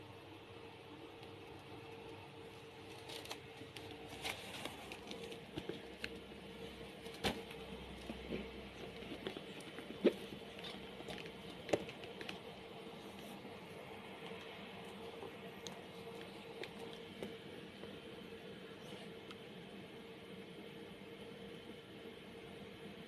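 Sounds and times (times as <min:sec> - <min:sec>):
faint steady hum: 0:00.0 - 0:23.0
handbag handling clicks and rustles: 0:02.8 - 0:12.6.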